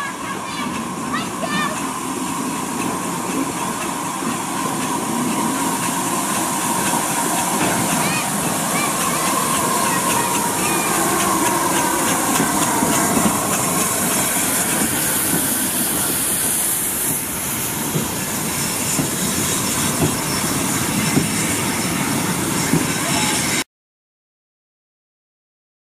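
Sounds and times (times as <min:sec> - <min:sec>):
steam hissing: 0:00.0 - 0:23.6
train wheels rumbling and clattering: 0:00.0 - 0:23.6
wagons knocking: 0:00.5 - 0:16.2, 0:17.9 - 0:21.5.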